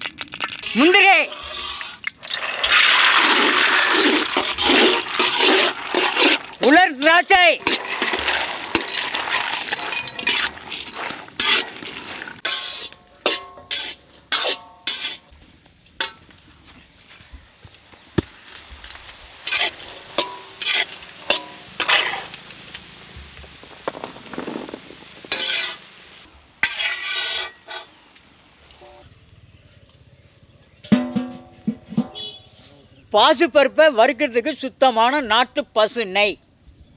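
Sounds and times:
nuts frying in oil sizzling: 0.0 - 13.0, 18.0 - 29.4
metal ladle scraping pan: 0.6 - 6.7, 7.6 - 15.3, 19.4 - 22.5, 23.4 - 28.1.

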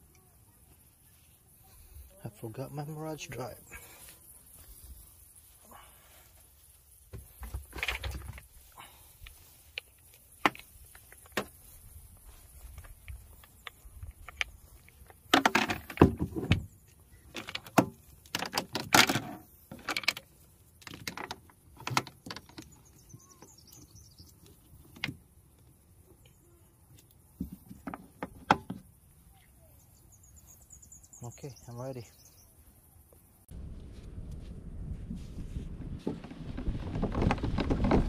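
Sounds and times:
plastic and metal clicks and rattles: 17.3 - 22.7.

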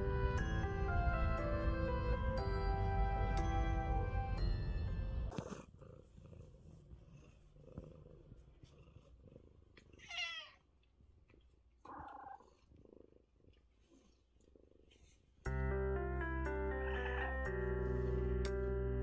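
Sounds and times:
cat purring: 4.6 - 10.0, 11.0 - 15.4
cat meowing: 10.0 - 10.6, 16.7 - 17.5.

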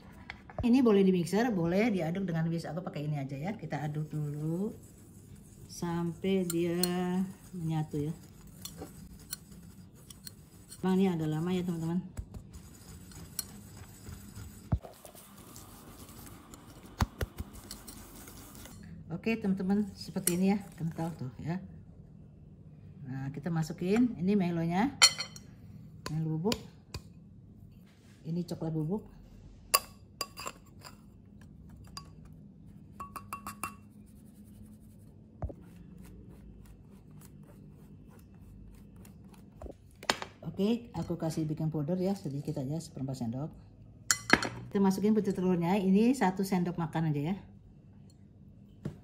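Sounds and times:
whisk scraping in glass bowl: 3.7 - 18.8, 19.6 - 21.2
whisk tapping against glass: 33.0 - 33.8.

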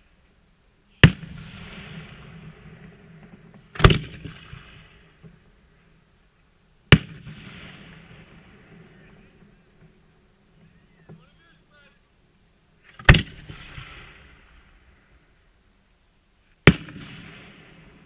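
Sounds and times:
firework shells bursting: 12.8 - 15.2.

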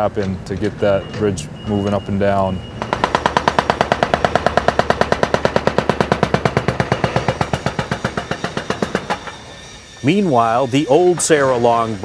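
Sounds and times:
hydraulic breaker hammer pounding concrete: 2.8 - 9.5.

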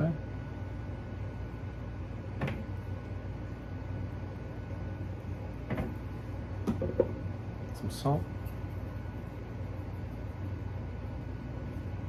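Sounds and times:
steady low hum: 0.0 - 12.0
faint knocks on wire rack: 6.6 - 7.2.

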